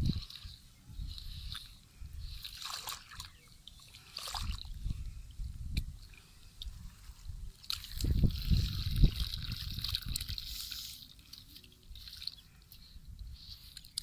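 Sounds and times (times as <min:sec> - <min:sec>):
water trickling: 0:00.0 - 0:14.0
hands splashing in muddy water: 0:01.4 - 0:04.7, 0:07.6 - 0:12.5.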